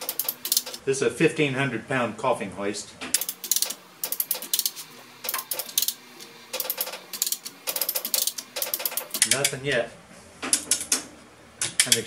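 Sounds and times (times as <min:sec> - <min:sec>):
chain hoist ratchet clicking: 0:00.0 - 0:00.8, 0:03.2 - 0:09.6.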